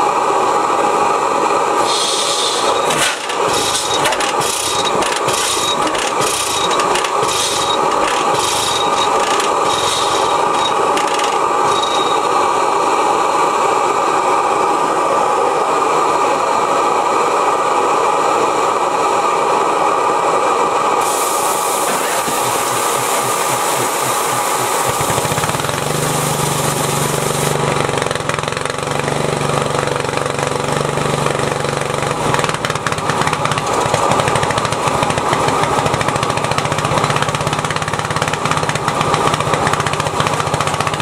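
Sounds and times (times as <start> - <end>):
propane burner rushing: 0.0 - 41.0
sharp hiss: 1.8 - 4.8, 21.0 - 27.6
engine puffing: 1.8 - 12.4.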